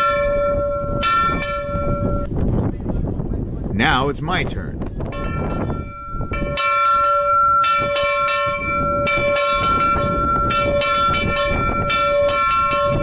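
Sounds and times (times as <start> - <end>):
hand bell ringing: 0.0 - 2.2, 5.1 - 13.0.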